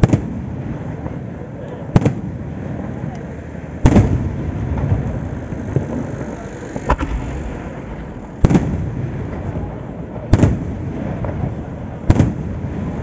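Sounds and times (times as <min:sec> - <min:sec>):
low rumble: 0:06.7 - 0:09.8
firework shells bursting: 0:06.8 - 0:09.7.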